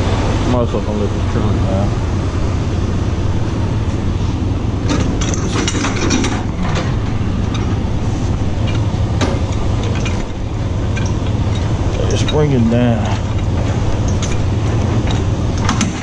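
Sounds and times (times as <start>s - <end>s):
diesel truck engine idling: 0.0s - 16.0s
clanks and rattles: 3.4s - 16.0s.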